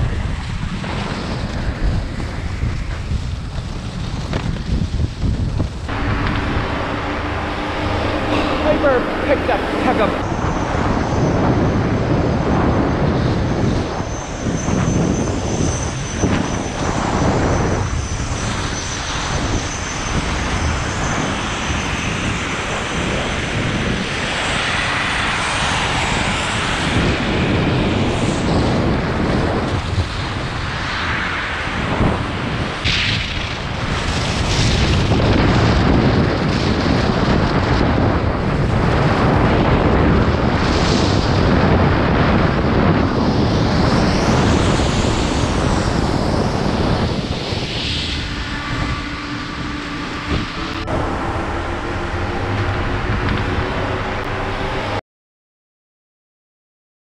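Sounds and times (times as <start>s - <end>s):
wind rushing over camera: 0.0s - 55.0s
skis scraping on snow: 0.5s - 10.2s.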